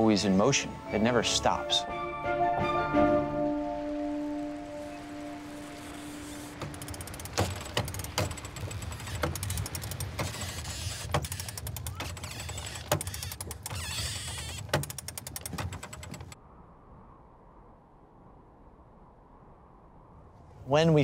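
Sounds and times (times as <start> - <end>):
rapid ratchet-like clicks: 6.2 - 16.4
sharp mechanical knocks: 6.5 - 16.4
low rumble: 16.3 - 20.7.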